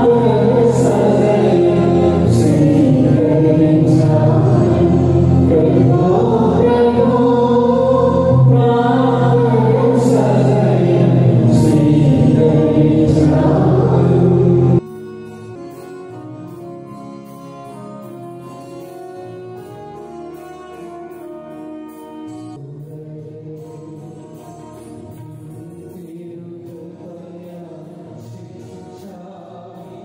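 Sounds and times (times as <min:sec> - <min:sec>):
choir singing a hymn: 0:00.0 - 0:14.8
keyboard music: 0:00.0 - 0:22.7.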